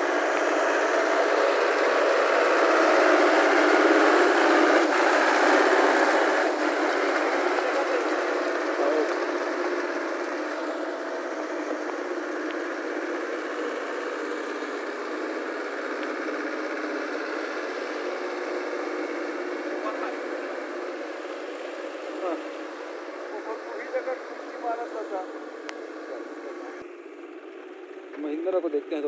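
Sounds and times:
wheels churning through mud: 0.0 - 28.6
tractor diesel engine: 0.0 - 29.0.

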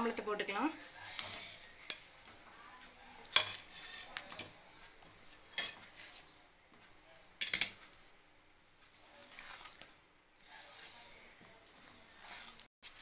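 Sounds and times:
wooden spatula scraping metal pot: 0.1 - 6.4, 8.8 - 13.0.

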